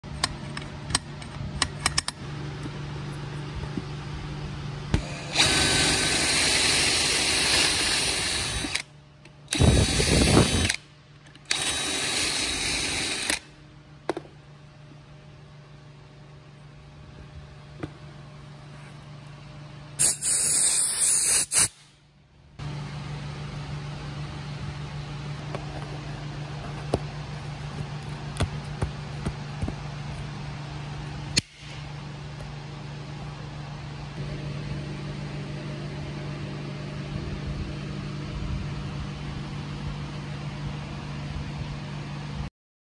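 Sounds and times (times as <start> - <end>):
steady low hum: 0.0 - 42.5
power drill boring into wood: 5.2 - 8.8, 11.5 - 13.4.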